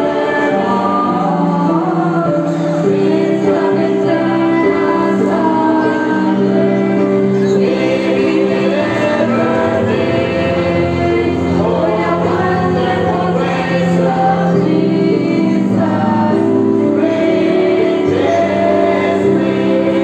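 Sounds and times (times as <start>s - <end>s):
choir singing gospel: 0.0s - 20.0s.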